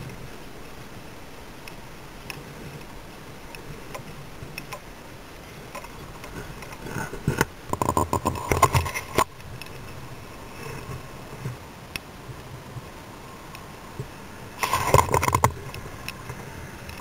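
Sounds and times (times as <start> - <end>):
light ticks: 1.6 - 2.9, 3.5 - 4.9, 5.7 - 10.0, 10.7 - 12.5, 13.5 - 17.0.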